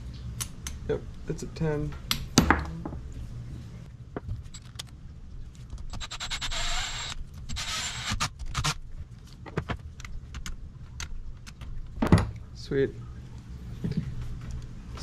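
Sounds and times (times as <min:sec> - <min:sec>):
socket wrench ratcheting: 0:05.9 - 0:08.8.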